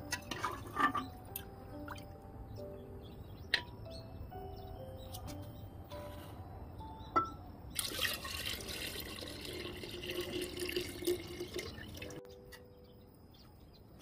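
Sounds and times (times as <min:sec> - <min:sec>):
liquid pouring into crock: 0:07.8 - 0:12.2.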